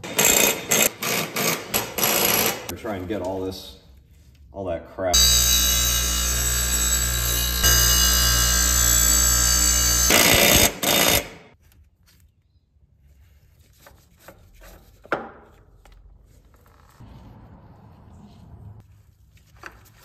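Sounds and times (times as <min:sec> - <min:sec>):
bench grinder grinding blade: 0:05.2 - 0:11.4.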